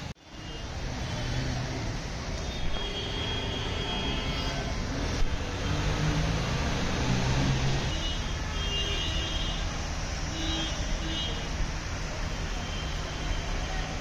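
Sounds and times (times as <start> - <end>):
traffic noise: 0.0 - 14.0.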